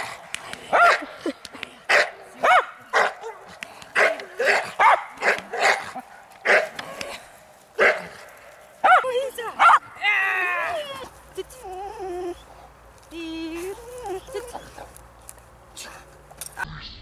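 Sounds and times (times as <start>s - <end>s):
young dog barking: 1.9s - 6.8s, 7.8s - 8.1s, 8.8s - 9.9s.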